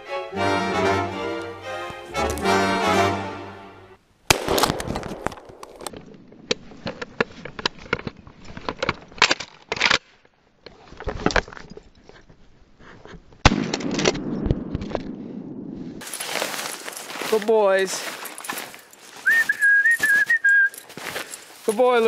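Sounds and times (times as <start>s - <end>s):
footsteps crunching through snow: 16.0s - 22.0s.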